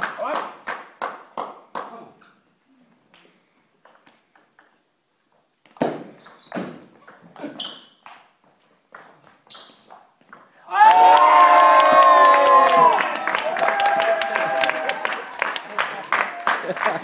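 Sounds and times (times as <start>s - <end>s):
high squeaks: 6.2s - 8.1s, 9.4s - 10.2s.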